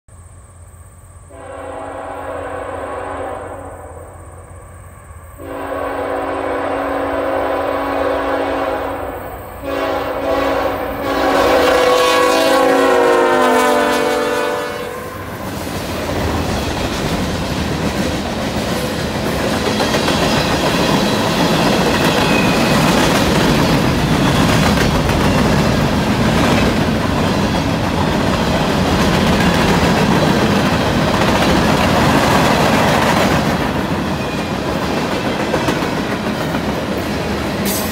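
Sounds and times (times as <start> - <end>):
train wheels rolling past: 0.9 - 37.9
locomotive air horn blasts: 1.3 - 4.2, 5.4 - 15.3.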